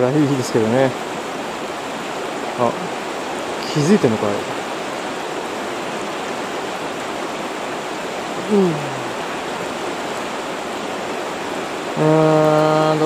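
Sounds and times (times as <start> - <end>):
river rushing: 0.0 - 13.0
person murmuring: 8.4 - 9.2, 12.0 - 13.0.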